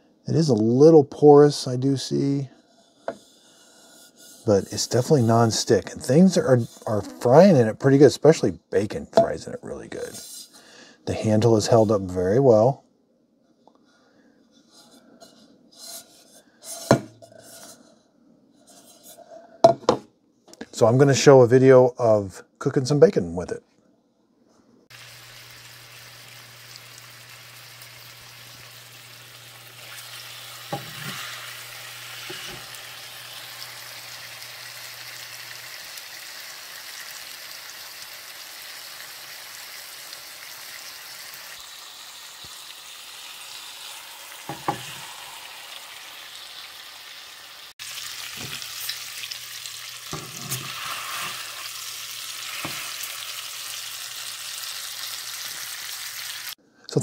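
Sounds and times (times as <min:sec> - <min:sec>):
bacon sizzling in a frying pan: 0:24.9 - 0:56.6.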